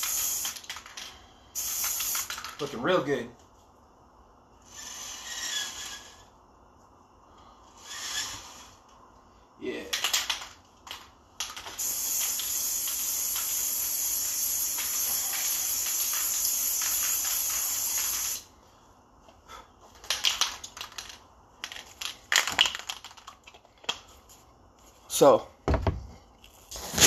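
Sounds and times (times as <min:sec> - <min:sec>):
aerosol spray hissing: 0:00.0 - 0:00.7, 0:01.6 - 0:02.4, 0:11.8 - 0:18.5.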